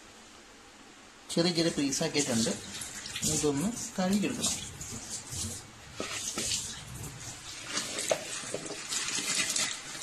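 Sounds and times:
water splashing in a bowl: 0:02.2 - 0:10.0
pieces knocking against bowl: 0:07.9 - 0:09.7.

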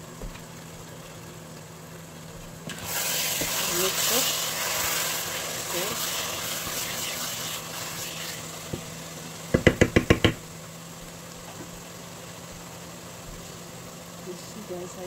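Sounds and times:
steady low hum: 0:00.0 - 0:15.0
spoon knocking on pot rim: 0:09.6 - 0:10.4.

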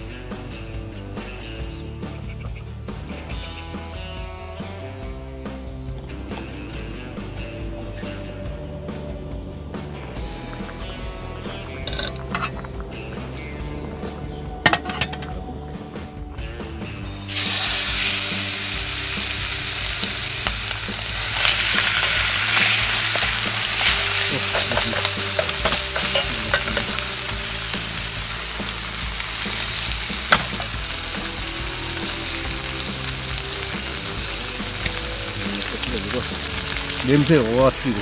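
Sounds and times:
metal tongs clicking on pan: 0:11.9 - 0:12.6, 0:21.4 - 0:27.4
meat sizzling in a pan: 0:17.3 - 0:38.0.

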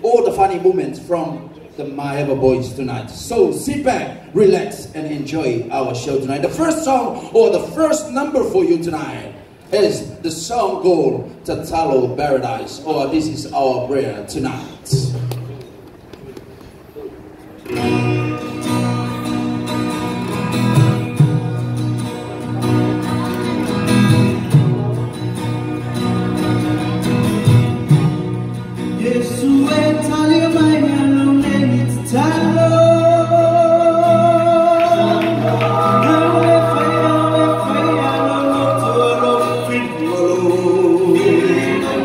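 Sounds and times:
acoustic guitars strumming: 0:17.6 - 0:42.0
men singing in harmony: 0:31.2 - 0:42.0.

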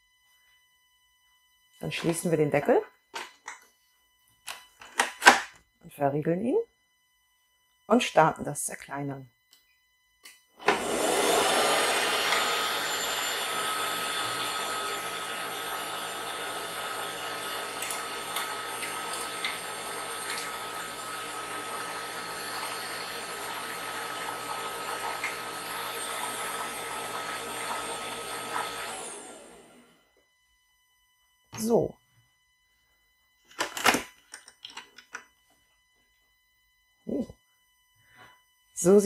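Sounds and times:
kitchen machine motor whirring: 0:10.6 - 0:30.0.

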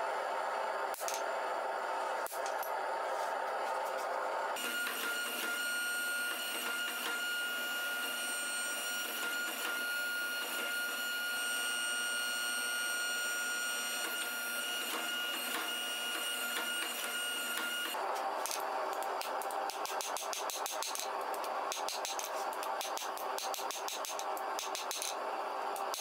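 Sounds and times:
hydraulic pump whine: 0:00.0 - 0:19.7.

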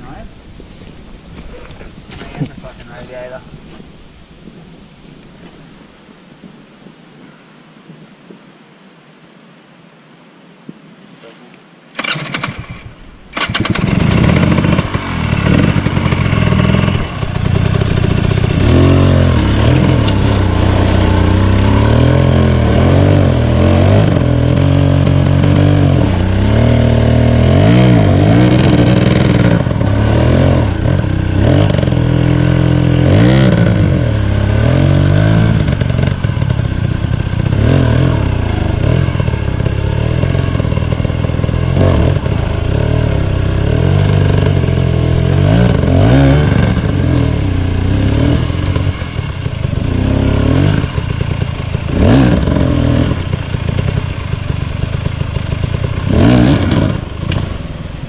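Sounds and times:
dirt bike engine revving: 0:12.0 - 0:58.0
tyres and frame scraping rock: 0:13.4 - 0:23.0.

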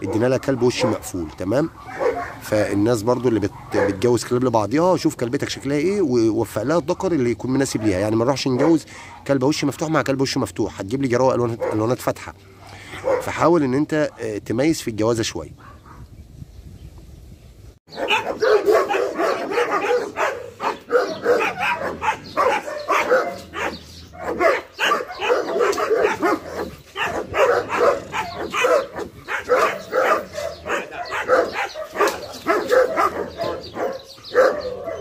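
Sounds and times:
dog barking rapidly: 0:00.0 - 0:04.3, 0:06.7 - 0:09.4, 0:11.4 - 0:12.0, 0:12.6 - 0:13.4, 0:15.6 - 0:16.0, 0:17.9 - 0:35.0.

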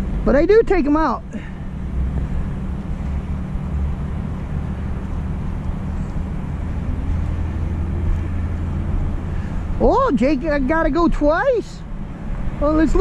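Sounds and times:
vehicle engines droning: 0:00.0 - 0:13.0
faint rising whine: 0:01.2 - 0:10.2.

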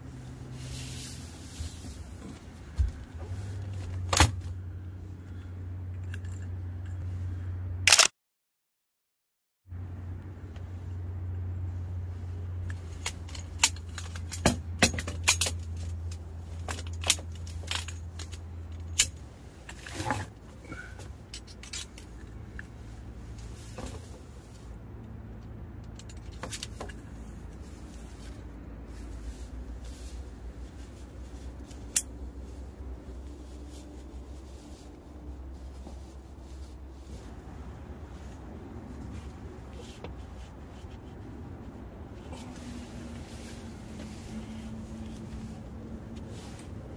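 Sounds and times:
metal tent poles clicking: 0:12.6 - 0:22.8, 0:25.0 - 0:27.1, 0:31.5 - 0:32.4.

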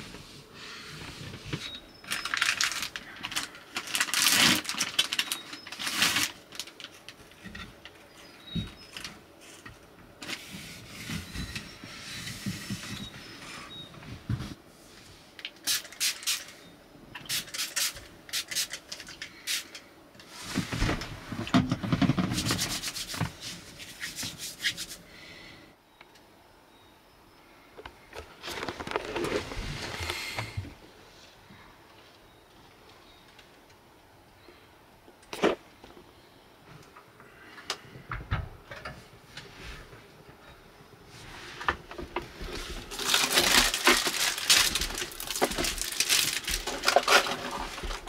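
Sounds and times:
plastic packet crinkling: 0:02.0 - 0:07.2, 0:42.8 - 0:48.0.

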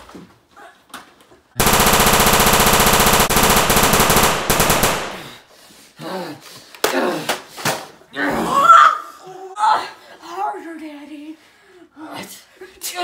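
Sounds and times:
rapid automatic gunfire: 0:01.6 - 0:05.4.

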